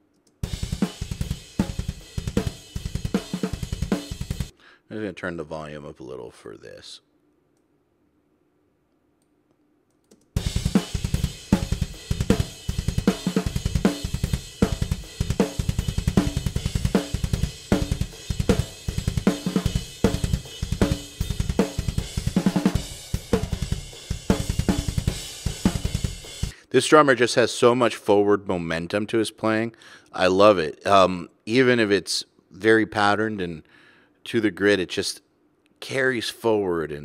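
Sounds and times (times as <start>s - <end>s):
cymbals: 0.4s - 4.5s, 10.4s - 26.6s
double bass drum: 10.4s - 26.6s.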